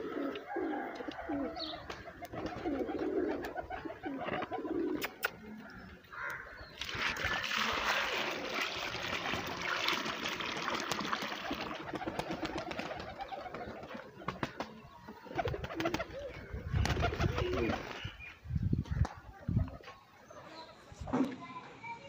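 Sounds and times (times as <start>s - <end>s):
pigeons cooing: 0.0s - 7.8s, 11.2s - 18.2s.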